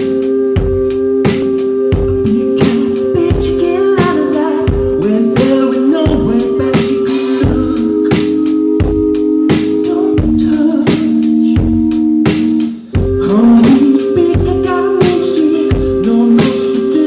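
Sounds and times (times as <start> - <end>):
man singing: 2.0 - 17.0.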